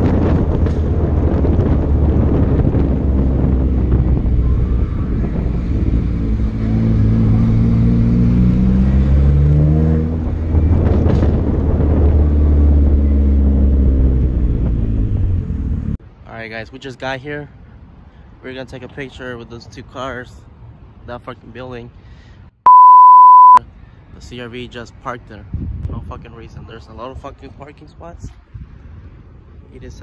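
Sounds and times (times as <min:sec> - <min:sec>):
wind noise: 0:00.0 - 0:07.1, 0:10.0 - 0:13.0, 0:25.4 - 0:26.9
car engine and exhaust: 0:00.0 - 0:16.0
road noise: 0:00.0 - 0:30.0.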